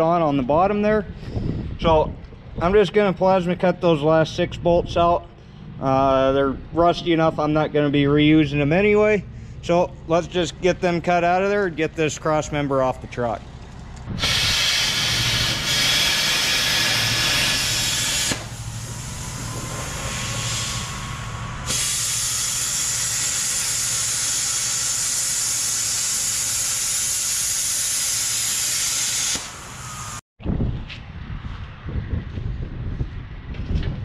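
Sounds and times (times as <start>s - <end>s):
low steady hum: 0.0s - 14.2s, 17.8s - 24.2s
plasma cutter hissing: 14.2s - 30.2s.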